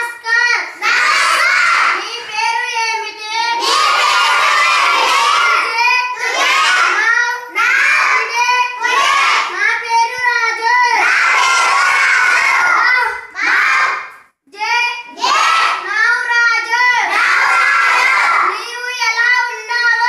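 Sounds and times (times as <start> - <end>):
children chanting in unison: 0.0 - 14.3, 15.1 - 20.0
boy calling out phrases: 2.0 - 3.6, 9.5 - 11.0, 14.5 - 15.2, 15.8 - 17.1, 18.5 - 20.0.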